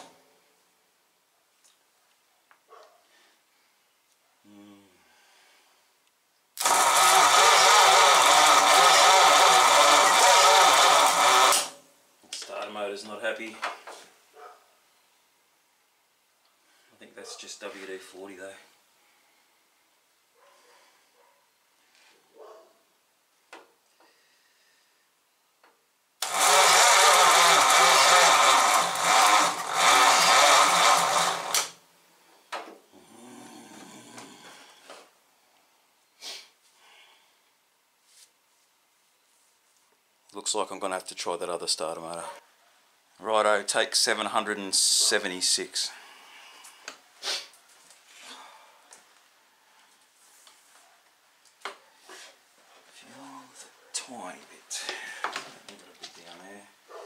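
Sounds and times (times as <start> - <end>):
starter motor cranking: 6.6 - 11.8, 26.2 - 31.8.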